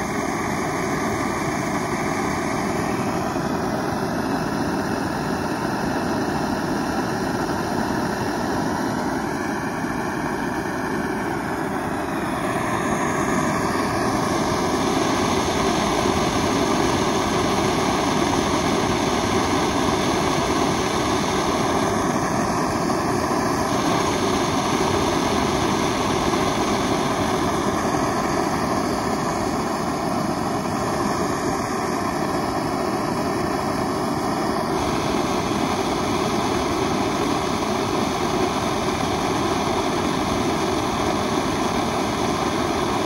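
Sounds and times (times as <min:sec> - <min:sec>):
stove burner roaring: 0:00.0 - 0:43.0.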